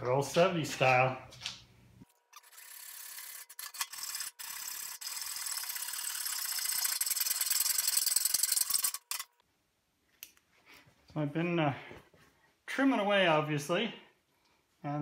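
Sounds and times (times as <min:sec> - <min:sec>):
hacksaw cutting sheet steel: 0:02.3 - 0:09.3.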